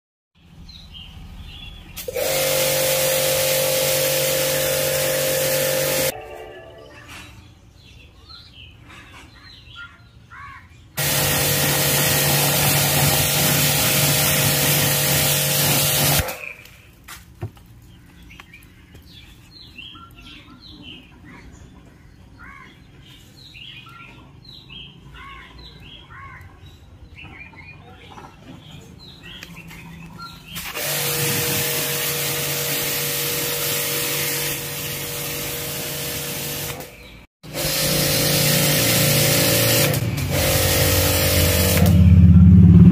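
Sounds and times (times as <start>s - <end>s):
birds chirping: 0.4s - 2.1s, 16.3s - 30.8s
pressure washer spraying: 2.0s - 6.2s, 11.0s - 16.6s, 30.5s - 42.2s.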